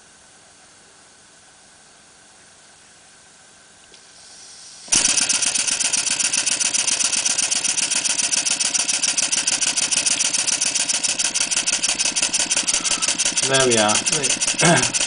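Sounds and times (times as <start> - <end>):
air hissing: 4.0 - 5.6
steam engine exhaust beat: 4.2 - 15.0.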